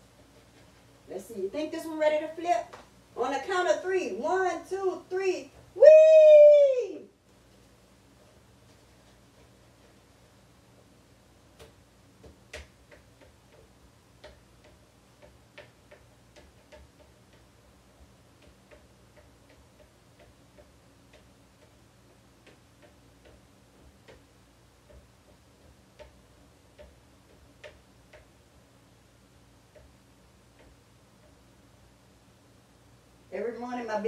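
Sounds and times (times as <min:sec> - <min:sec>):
low steady hum: 0:00.0 - 0:34.0
utensil tapping on a griddle: 0:11.6 - 0:28.3.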